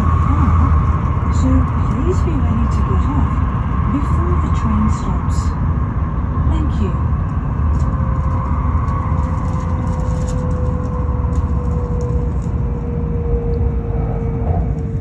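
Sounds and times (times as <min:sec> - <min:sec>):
train low rumble: 0:00.0 - 0:15.0
train whine: 0:00.0 - 0:15.0.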